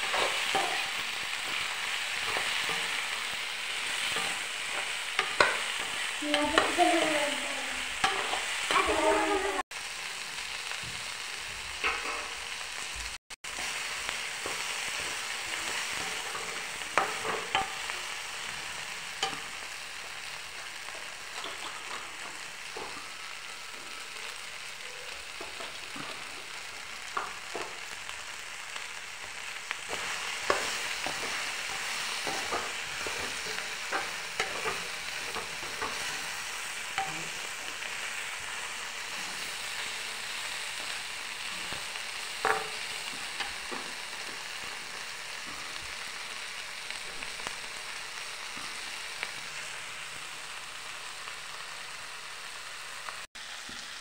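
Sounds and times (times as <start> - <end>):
metal spatula scraping a pan: 0.0 - 7.1, 8.0 - 9.6, 14.4 - 19.8, 29.9 - 39.9
vegetables sizzling in a frying pan: 0.0 - 54.0.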